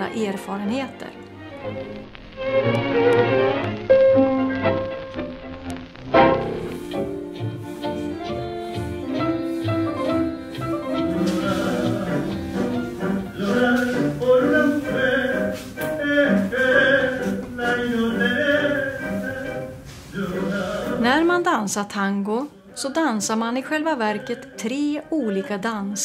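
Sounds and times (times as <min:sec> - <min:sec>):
tango music: 0:00.0 - 0:21.7, 0:22.7 - 0:26.0
person singing: 0:07.8 - 0:21.4, 0:23.6 - 0:26.0.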